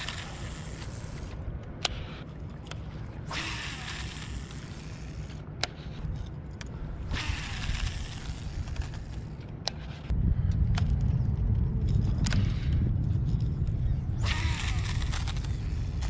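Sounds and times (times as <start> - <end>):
sharp reel clicks: 0.0 - 6.0, 6.6 - 10.1, 14.1 - 16.0
fishing reel whirring: 0.0 - 6.3, 6.9 - 10.1, 13.3 - 16.0
low rumble: 6.0 - 16.0.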